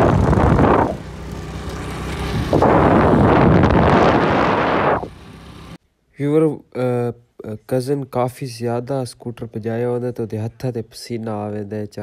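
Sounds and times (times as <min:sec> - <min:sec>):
wind buffeting on microphone: 0:00.0 - 0:01.0, 0:02.2 - 0:05.1
motorcycle engine running: 0:00.0 - 0:05.8.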